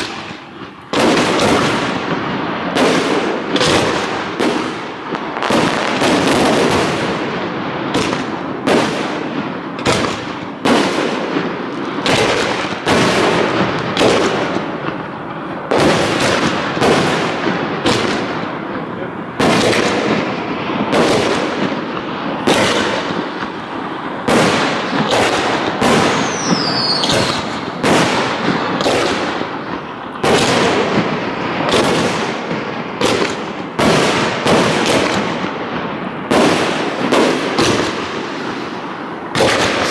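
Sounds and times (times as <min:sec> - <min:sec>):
fireworks bangs: 0:00.0 - 0:39.9
fireworks crackling: 0:00.0 - 0:39.9
falling whistle: 0:26.1 - 0:27.5.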